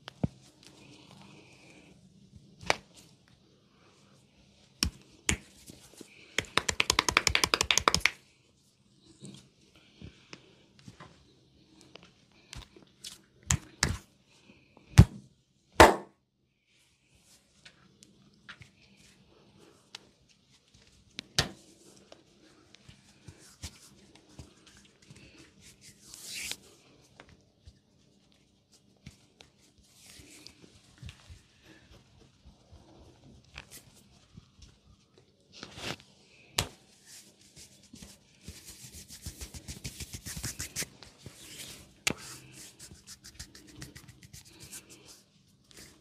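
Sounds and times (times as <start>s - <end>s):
hands slapping skin: 4.8s - 5.5s, 6.4s - 8.2s, 39.0s - 40.9s, 42.0s - 44.8s
tapping and rubbing skin: 6.4s - 8.2s.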